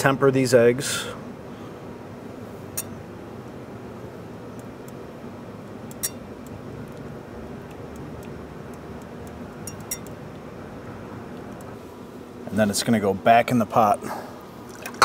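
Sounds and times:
whisk ticking against glass bowl: 9.6 - 10.2.

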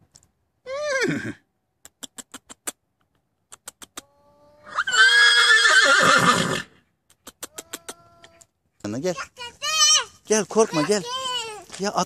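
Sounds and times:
horse whinnying: 0.7 - 1.4, 4.6 - 6.8.

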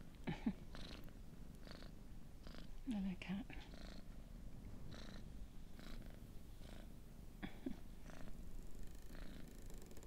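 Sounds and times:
cat purring: 0.3 - 10.0.

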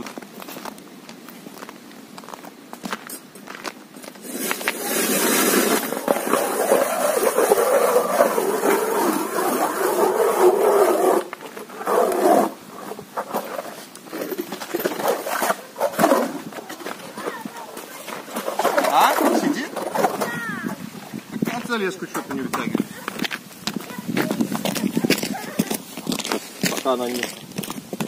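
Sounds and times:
ice auger grinding through ice: 4.2 - 20.8.

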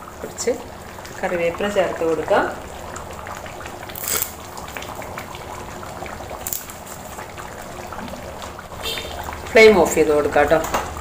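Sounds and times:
curry bubbling in a pan: 0.0 - 11.0.

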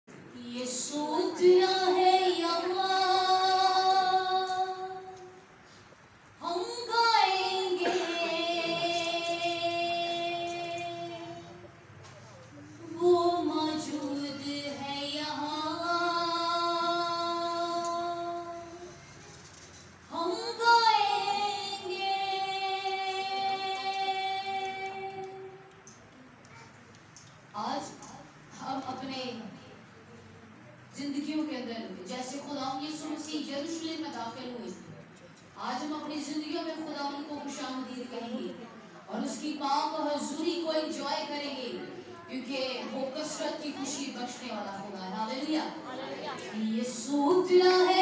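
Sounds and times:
person singing unaccompanied: 6.4 - 11.6.

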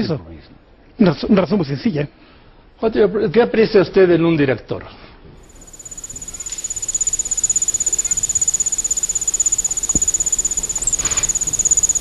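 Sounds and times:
crickets chirping: 5.4 - 12.0.

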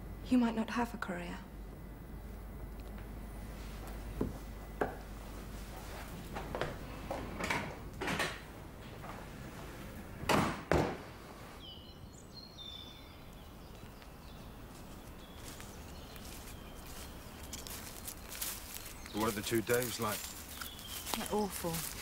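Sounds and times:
footsteps walking: 3.5 - 7.2, 13.7 - 22.0
door pulled shut: 10.2 - 11.2
woodland background: 11.0 - 22.0.

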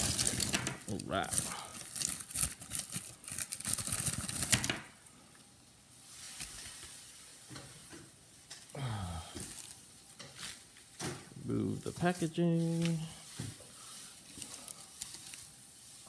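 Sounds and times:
plastic bag crinkling: 0.0 - 5.0, 11.6 - 16.0.

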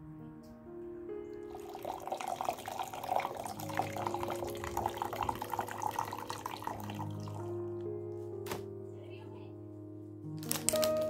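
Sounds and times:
soft background music: 0.0 - 11.0
water splashing and trickling: 1.4 - 7.6.

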